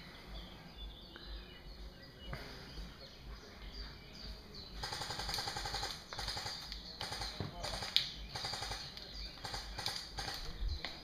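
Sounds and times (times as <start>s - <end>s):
woodland background: 0.0s - 11.0s
airsoft gun firing full auto: 4.8s - 10.5s.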